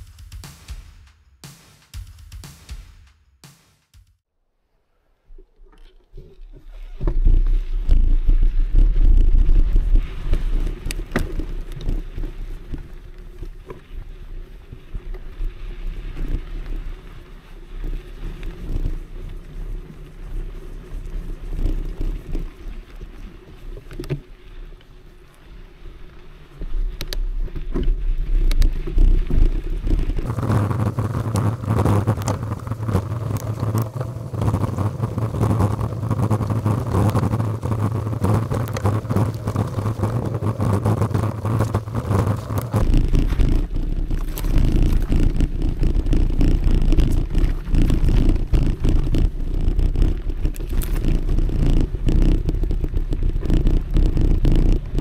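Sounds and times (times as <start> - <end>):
tyre noise: 6.1 - 55.0
wind rumble on microphone: 6.6 - 55.0
bike knocks and rattles: 27.6 - 55.0.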